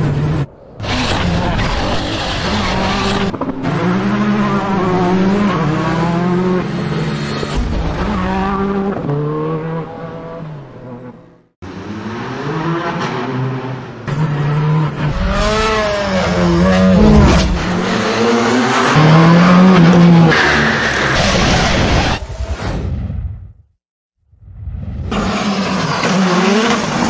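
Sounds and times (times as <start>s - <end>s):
racing engines revving: 0.0s - 22.2s, 25.0s - 27.0s.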